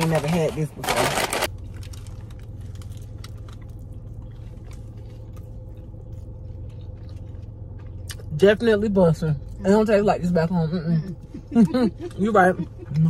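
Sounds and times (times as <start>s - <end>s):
low car hum: 0.0s - 13.0s
person chewing food: 1.5s - 8.4s.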